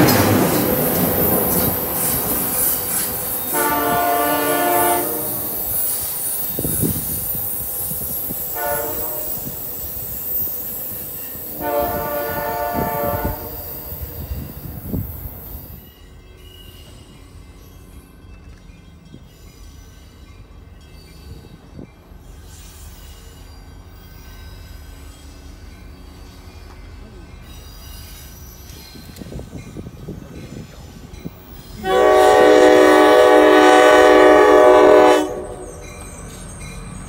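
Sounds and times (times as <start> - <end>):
distant train: 0.0 - 37.0
train rumble: 0.0 - 37.0
train horn blasts: 3.4 - 5.8, 8.5 - 9.7, 11.5 - 13.8, 31.8 - 35.8.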